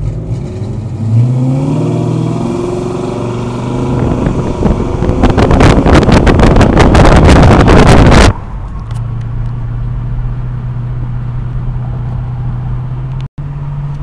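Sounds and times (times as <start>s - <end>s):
car engine drone in cabin: 0.0s - 14.0s
wind buffeting microphone: 2.4s - 8.7s.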